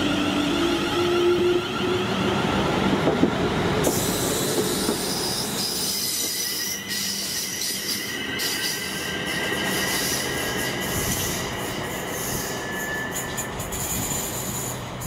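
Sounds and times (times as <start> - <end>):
train wheel squeal: 3.8 - 15.0.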